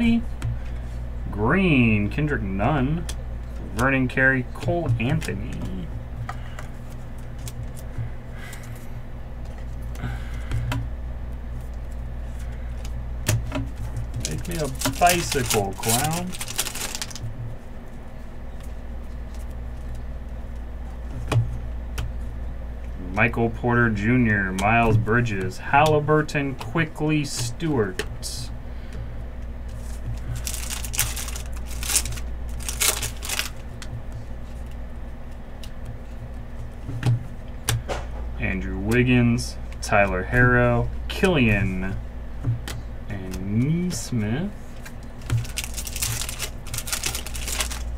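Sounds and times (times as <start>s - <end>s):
steady low hum: 0.0s - 47.9s
trading cards flipped by hand: 13.8s - 17.2s, 29.7s - 34.8s, 44.7s - 47.9s
foil wrapper crinkling and tearing: 14.2s - 17.3s, 29.8s - 33.8s, 45.2s - 47.9s.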